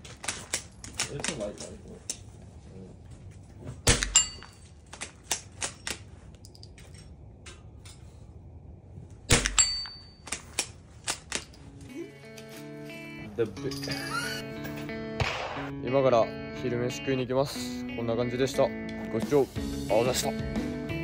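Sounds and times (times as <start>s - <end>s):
rifle shots: 3.8s - 6.0s, 9.3s - 11.4s, 15.2s - 15.7s.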